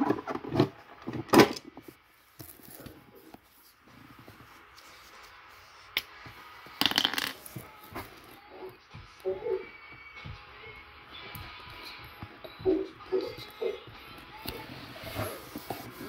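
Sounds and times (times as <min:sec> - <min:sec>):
phone rubbing against cloth: 0:14.5 - 0:16.0.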